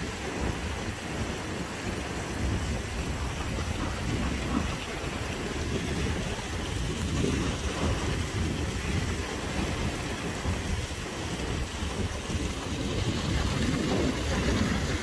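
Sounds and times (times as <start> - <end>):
stream rushing over rocks: 0.0 - 15.0
low uneven rumble: 0.2 - 15.0.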